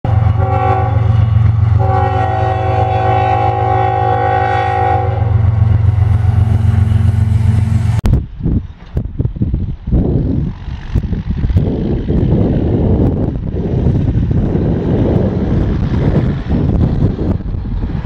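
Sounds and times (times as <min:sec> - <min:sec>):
locomotive air horn: 0:00.1 - 0:05.4.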